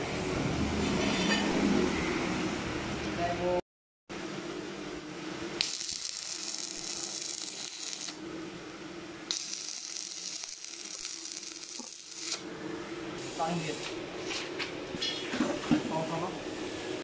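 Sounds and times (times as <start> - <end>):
welding arc crackling and hissing: 5.6 - 8.2, 9.2 - 12.4, 13.2 - 14.0.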